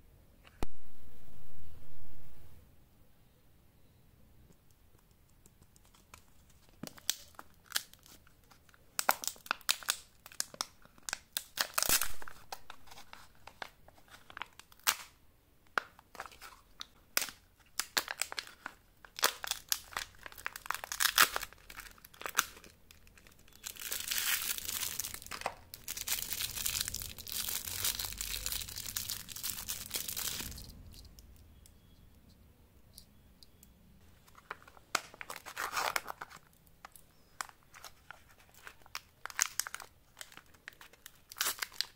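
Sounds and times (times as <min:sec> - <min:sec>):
wrapper tearing and crinkling: 0:05.8 - 0:15.2, 0:15.8 - 0:30.9, 0:34.2 - 0:41.9.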